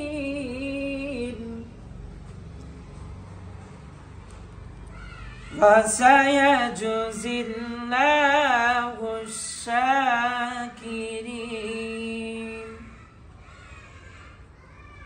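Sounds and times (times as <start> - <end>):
man reciting melodically: 0.0 - 1.8, 5.5 - 13.2.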